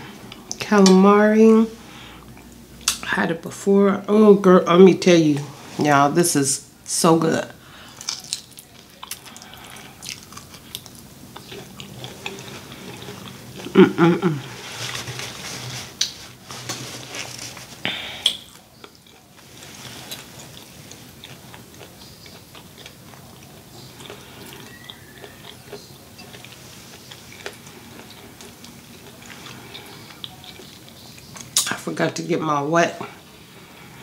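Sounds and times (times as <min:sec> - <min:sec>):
chewing and lip smacking: 0:08.0 - 0:13.8, 0:18.2 - 0:31.8.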